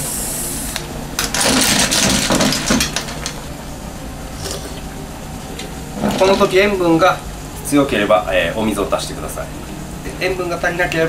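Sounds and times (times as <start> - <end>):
kitchen hum: 0.0 - 11.0
person sipping: 4.3 - 5.0.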